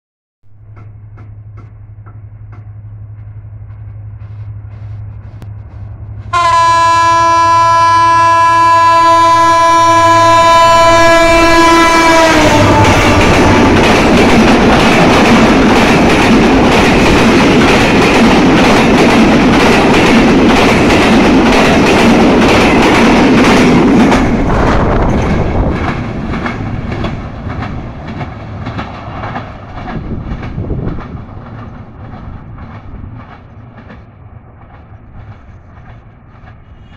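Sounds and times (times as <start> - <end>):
locomotive engine hum: 0.5 - 36.9
train wheels clickety-clack: 0.6 - 6.3, 11.1 - 36.9
train horn: 6.3 - 13.7.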